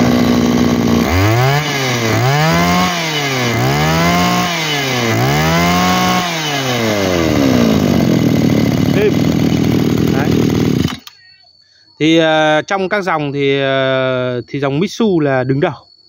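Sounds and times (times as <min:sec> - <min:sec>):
brush cutter engine revving: 0:00.0 - 0:11.2.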